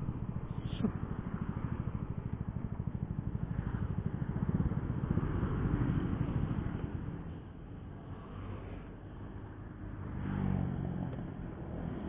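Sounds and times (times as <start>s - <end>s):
motorcycle engine idling: 0.0s - 8.1s.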